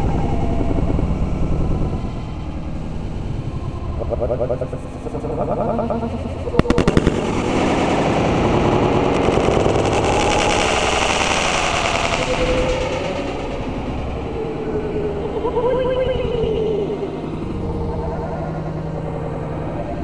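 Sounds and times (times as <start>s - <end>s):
wind on microphone: 0.0s - 18.9s
firework crackling: 6.5s - 14.3s
firework bangs: 6.6s - 14.2s.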